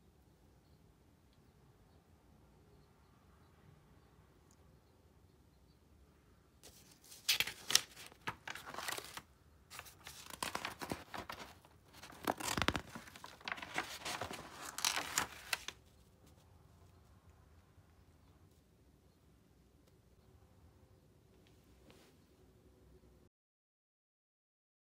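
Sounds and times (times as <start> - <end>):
sketchbook pages turning: 6.6 - 17.0.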